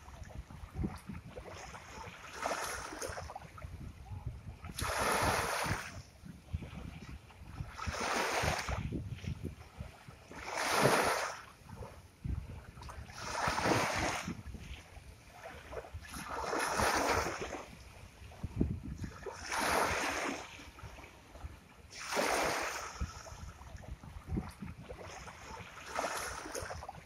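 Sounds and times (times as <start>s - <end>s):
waves breaking on shore: 0.0s - 27.0s.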